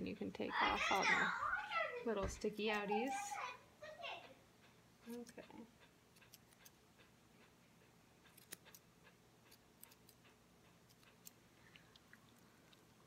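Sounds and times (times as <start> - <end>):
grooming shears snipping: 5.0 - 6.8, 8.2 - 11.4.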